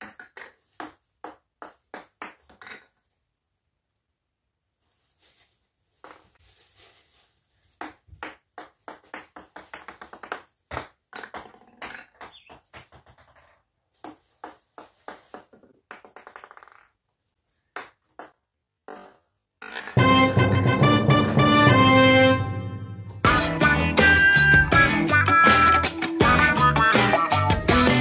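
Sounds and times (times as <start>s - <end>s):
ping pong balls bouncing on stone: 0.0s - 2.9s, 7.8s - 17.0s, 17.6s - 20.0s
loud music: 20.0s - 28.0s.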